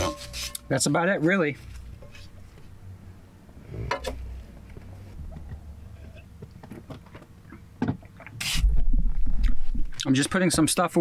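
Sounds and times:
rustling: 0.0s - 2.8s.

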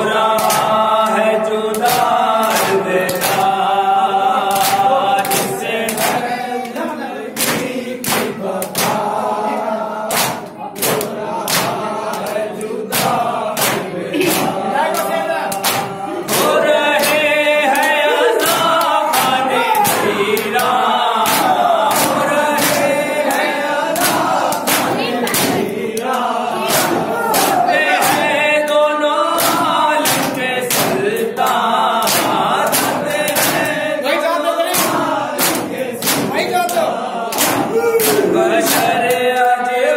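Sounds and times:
men singing a lament through microphones: 0.0s - 39.9s
hand slaps on chest: 0.4s - 0.7s.

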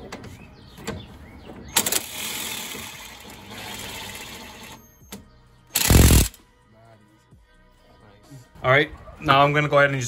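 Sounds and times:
air ratchet running: 1.8s - 4.8s, 5.8s - 6.4s.

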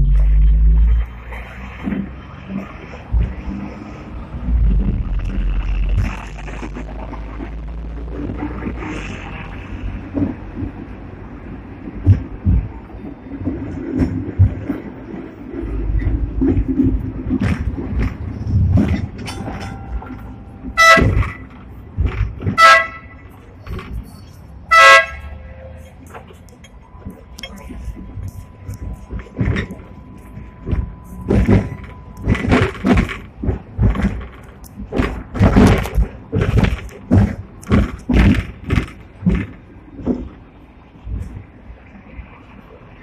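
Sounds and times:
tram rumbling on rails: 0.0s - 43.0s
wheel knocks and clacks: 11.8s - 24.0s, 30.6s - 40.4s.

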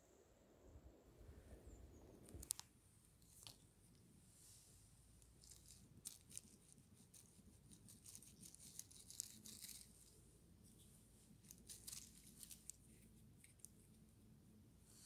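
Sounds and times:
dry grass and leaves crackling: 5.2s - 13.9s.

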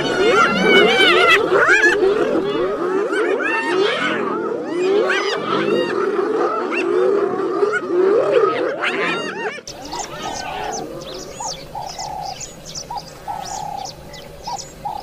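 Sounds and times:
hyenas calling: 9.7s - 15.0s.

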